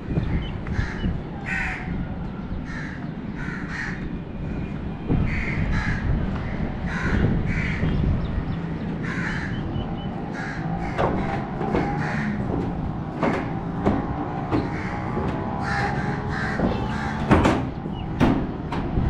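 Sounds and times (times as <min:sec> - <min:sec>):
crows cawing: 0:00.7 - 0:02.0, 0:02.6 - 0:04.1, 0:05.2 - 0:07.9, 0:09.0 - 0:09.7, 0:10.3 - 0:12.5, 0:14.6 - 0:17.4.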